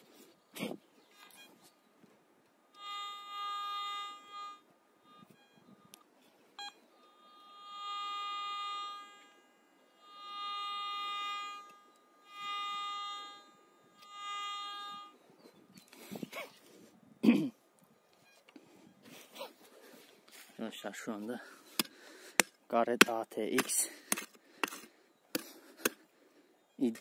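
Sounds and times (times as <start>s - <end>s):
metal detector buzzy tone: 1.1s - 1.8s, 2.7s - 16.6s, 18.1s - 20.5s.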